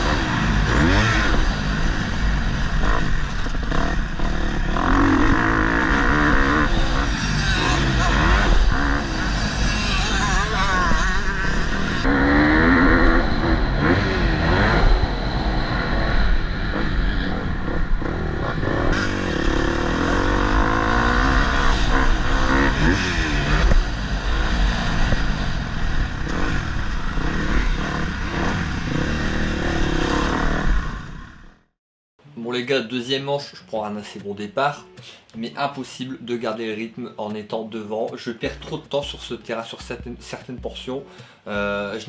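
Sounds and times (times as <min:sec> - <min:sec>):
motocross bike engine revving: 0:00.0 - 0:31.7
low rumble: 0:11.2 - 0:21.2.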